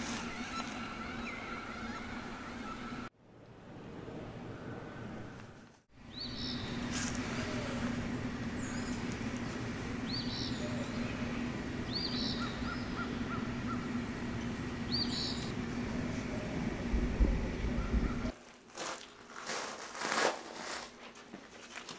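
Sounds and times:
birds calling: 0:00.0 - 0:03.1, 0:04.6 - 0:18.4
steady low hum: 0:00.0 - 0:21.5.

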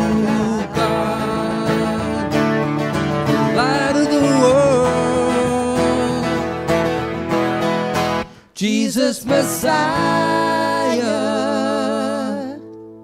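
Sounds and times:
person singing: 0:00.0 - 0:06.8, 0:08.4 - 0:12.9
acoustic guitar strumming: 0:00.0 - 0:08.4.

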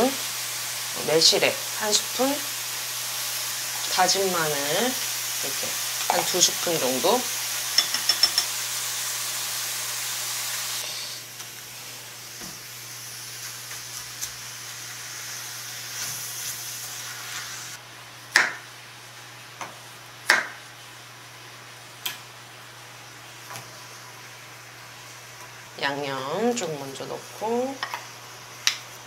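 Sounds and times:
meat sizzling in a frying pan: 0:00.0 - 0:29.0
knife striking wooden chopping board: 0:18.4 - 0:18.6, 0:20.3 - 0:20.6.

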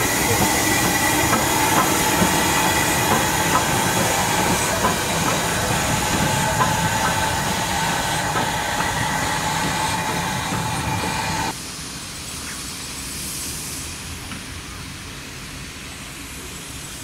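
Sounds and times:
locomotive wheels clanking: 0:00.0 - 0:11.5
steam hissing: 0:00.0 - 0:17.0.

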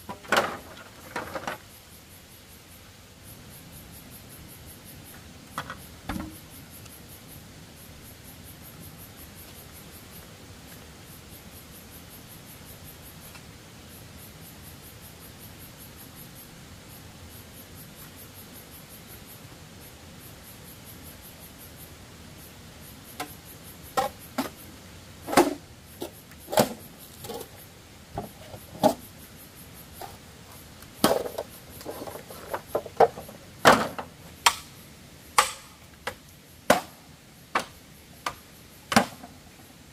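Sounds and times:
insects chirring: 0:00.0 - 0:39.9
machete knocking bamboo poles: 0:06.1 - 0:06.4, 0:33.0 - 0:34.7, 0:35.4 - 0:39.3.

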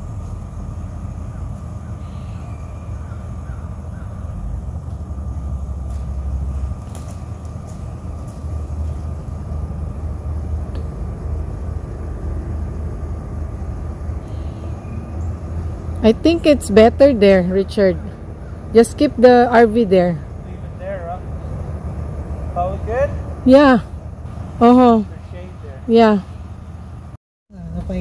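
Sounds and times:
pickup truck engine idling: 0:00.0 - 0:28.0.

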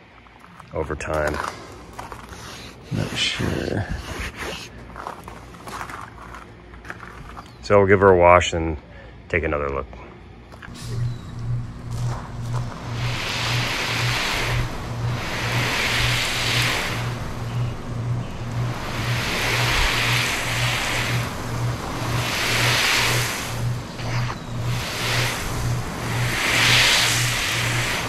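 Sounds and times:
hose spray hissing on fabric roof: 0:10.7 - 0:28.0.

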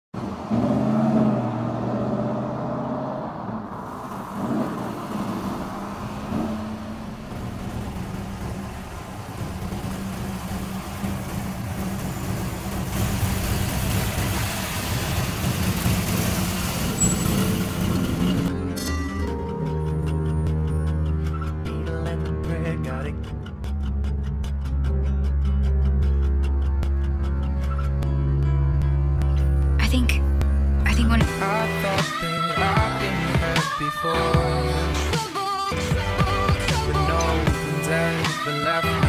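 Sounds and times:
road noise: 0:00.1 - 0:39.0
car engine running: 0:03.5 - 0:32.0.

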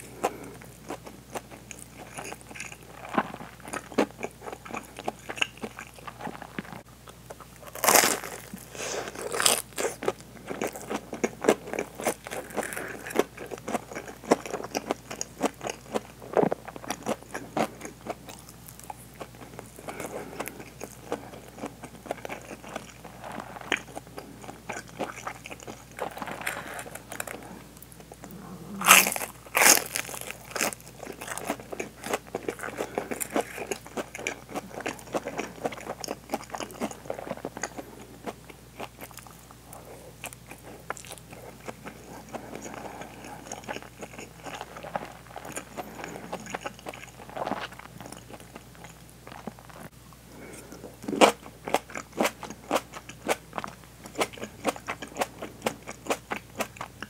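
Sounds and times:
crunchy bites into fried coating: 0:00.2 - 0:27.4, 0:28.8 - 0:39.6
chewing with small clicks: 0:09.8 - 0:28.3, 0:30.3 - 0:57.0.

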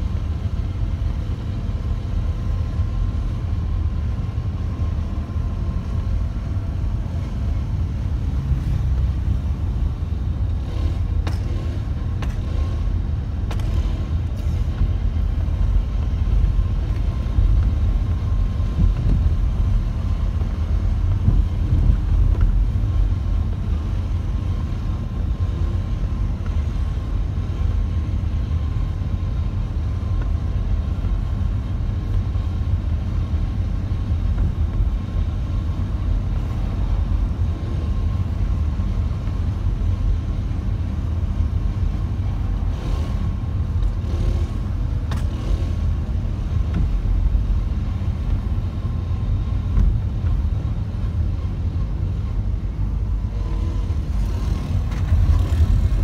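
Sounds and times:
car engine rumble: 0:00.0 - 0:56.0.

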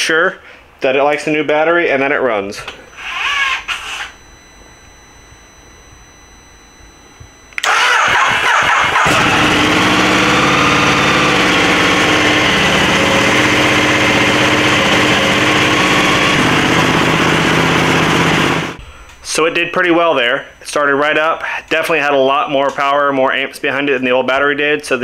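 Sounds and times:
starter motor cranking: 0:07.6 - 0:18.8
motorcycle engine idling: 0:08.5 - 0:18.8.

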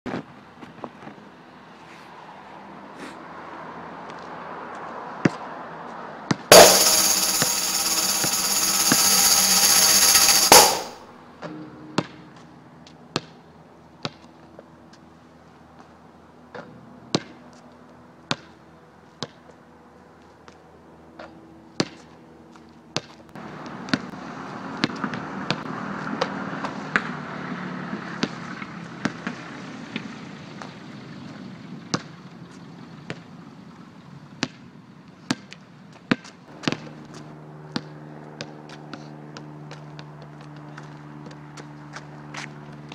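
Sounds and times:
loud steady noise with held tones: 0:06.5 - 0:11.2
basketball bouncing on asphalt: 0:24.8 - 0:25.6, 0:34.4 - 0:34.7.

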